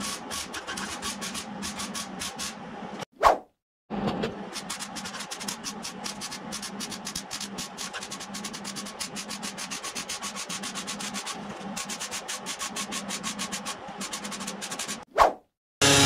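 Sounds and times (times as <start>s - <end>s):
music: 15.8s - 16.0s.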